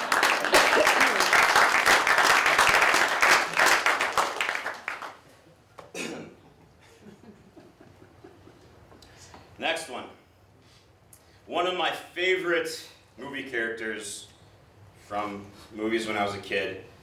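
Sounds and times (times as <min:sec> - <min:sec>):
audience clapping: 0:00.0 - 0:05.3
person coughing: 0:05.9 - 0:06.4.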